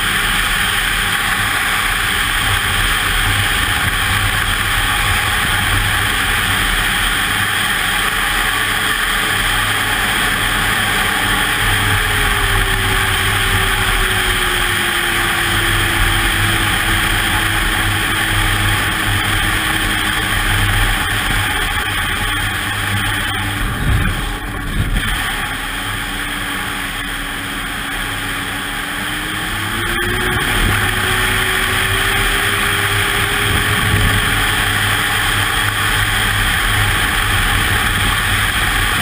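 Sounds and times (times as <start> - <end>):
hiss of track and wind: 0.0 - 39.0
snowmobile engine drone: 0.0 - 39.0.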